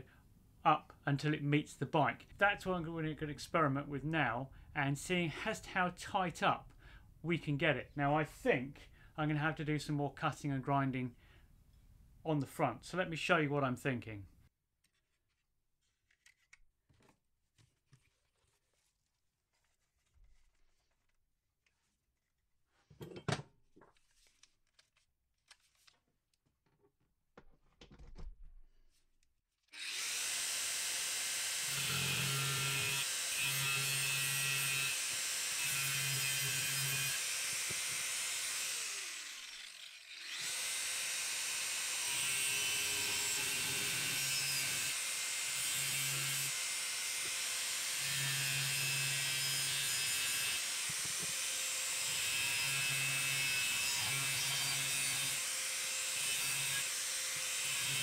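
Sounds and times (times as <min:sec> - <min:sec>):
angle grinder cutting steel: 0:29.8 - 0:58.0.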